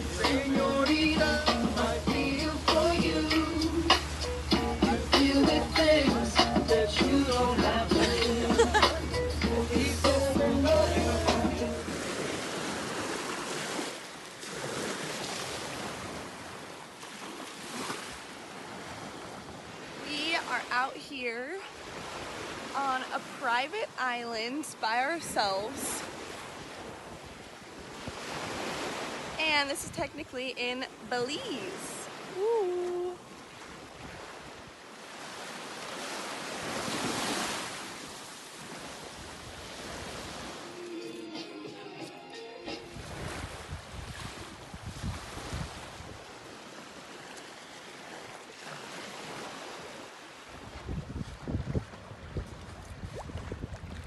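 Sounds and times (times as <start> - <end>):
small waves washing on sand: 0.0 - 41.0, 42.9 - 54.0
wind on microphone: 42.8 - 46.3, 50.6 - 54.0.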